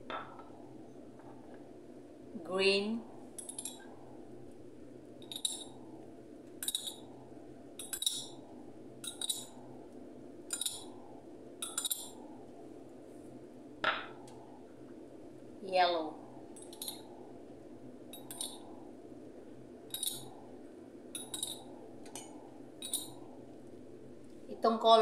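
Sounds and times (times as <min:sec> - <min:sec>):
low background noise: 0:00.0 - 0:25.0
metal spoon clinking glass: 0:06.6 - 0:07.0, 0:07.8 - 0:08.4, 0:10.5 - 0:10.9, 0:11.6 - 0:12.2, 0:18.1 - 0:18.6, 0:19.9 - 0:20.3, 0:21.2 - 0:21.7, 0:22.8 - 0:23.2.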